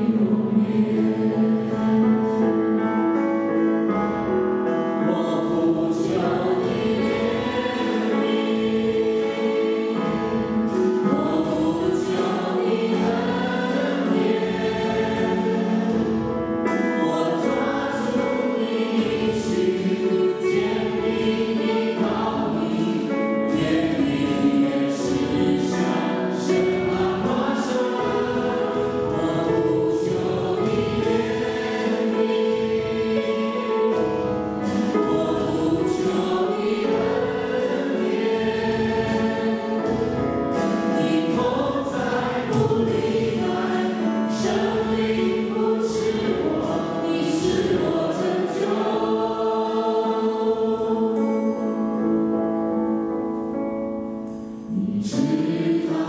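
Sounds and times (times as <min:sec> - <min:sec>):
group singing worship song: 0:00.0 - 0:03.6, 0:04.2 - 0:52.2, 0:54.1 - 0:56.0
backing music with steady beat: 0:00.0 - 0:56.0.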